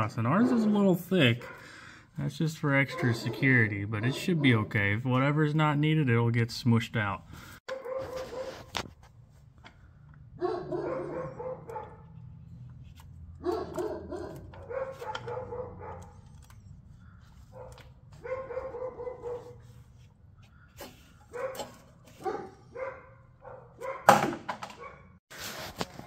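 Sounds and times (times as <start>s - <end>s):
dog barking: 1.4s - 1.8s, 2.8s - 4.6s, 7.7s - 8.7s, 10.4s - 12.2s, 13.4s - 16.3s, 17.5s - 19.7s, 21.3s - 25.2s.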